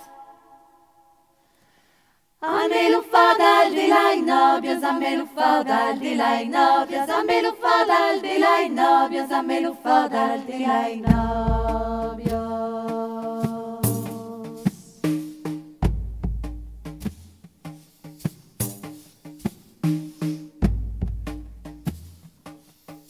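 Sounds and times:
women singing a cappella: 0.0 - 1.2, 2.4 - 15.2.

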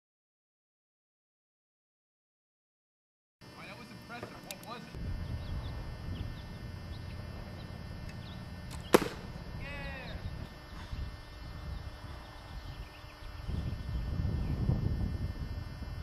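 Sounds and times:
high chirps: 5.0 - 14.8
wind rumbling on microphone: 5.0 - 16.0
sharp snap: 8.7 - 9.3.

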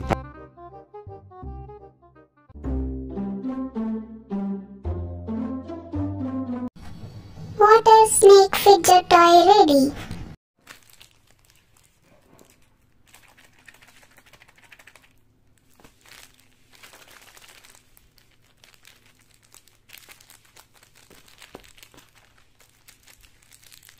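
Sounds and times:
plastic bags crinkling: 10.6 - 23.9.

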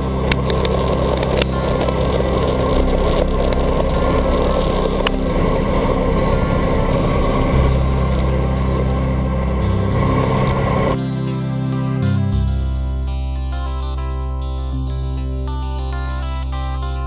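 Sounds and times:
bike tyres on wet road: 0.0 - 11.0
wind rush: 0.0 - 11.0
low hum: 0.0 - 16.4.

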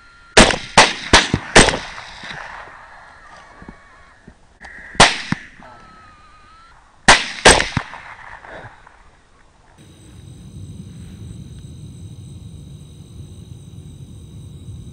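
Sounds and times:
rifle shots: 0.4 - 2.7, 7.1 - 8.4.

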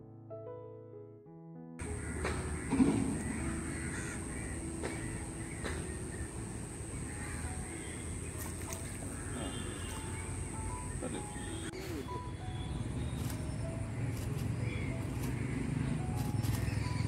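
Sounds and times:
crows cawing: 1.8 - 11.7, 14.6 - 16.0.

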